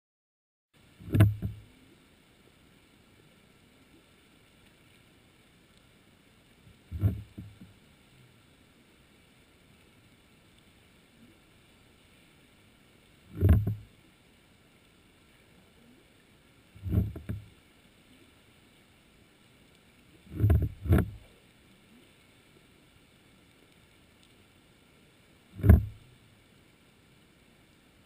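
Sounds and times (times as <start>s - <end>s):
faint hiss: 0.8s - 28.0s
dull underwater thumps: 1.0s - 1.7s, 6.7s - 7.8s, 13.3s - 13.9s, 16.8s - 17.5s, 20.3s - 21.3s, 25.6s - 26.1s.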